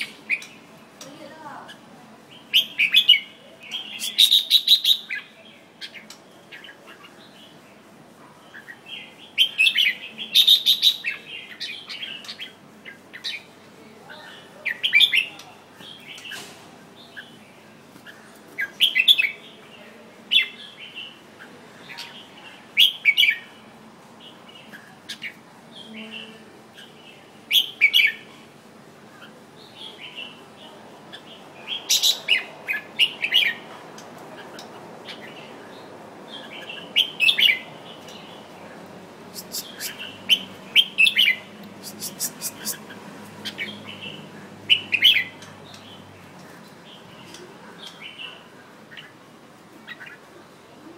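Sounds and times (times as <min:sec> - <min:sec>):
bird singing short phrases: 0:39.3 - 0:46.0.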